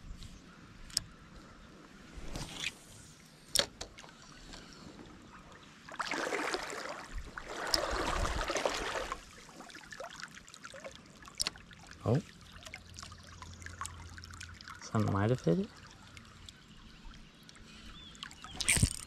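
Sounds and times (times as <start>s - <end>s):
stream trickling: 2.8s - 19.0s
creek water splashing: 5.4s - 19.0s.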